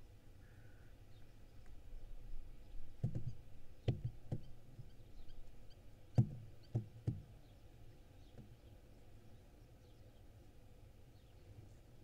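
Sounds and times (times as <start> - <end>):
knocks inside wooden nest box: 3.0 - 4.5, 6.2 - 7.3
faint small-bird chirps: 3.8 - 5.8.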